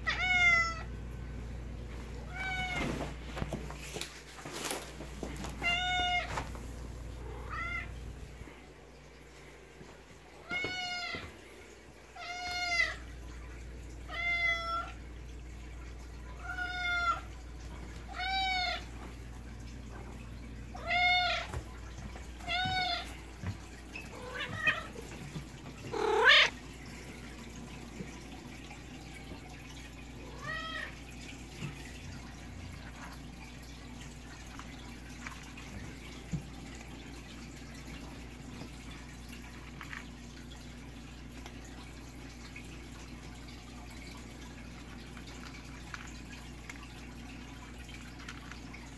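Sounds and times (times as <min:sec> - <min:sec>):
cat meowing: 0:00.0 - 0:00.9, 0:25.9 - 0:26.5.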